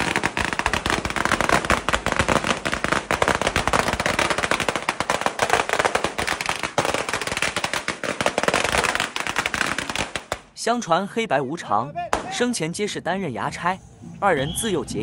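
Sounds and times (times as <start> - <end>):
firecrackers crackling: 0.0 - 10.6.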